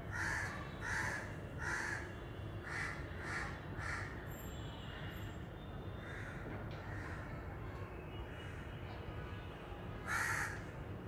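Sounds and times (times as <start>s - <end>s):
crow cawing: 0.1s - 2.0s, 2.6s - 4.1s, 10.0s - 10.7s.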